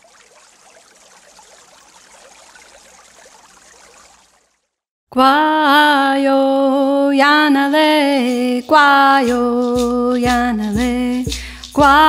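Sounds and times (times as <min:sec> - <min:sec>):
faint running water: 0:00.0 - 0:04.9.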